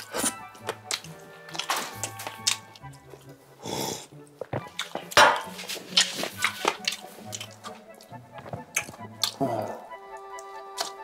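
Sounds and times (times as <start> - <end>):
background music: 0.0 - 11.0
person gulping a drink: 8.4 - 9.8.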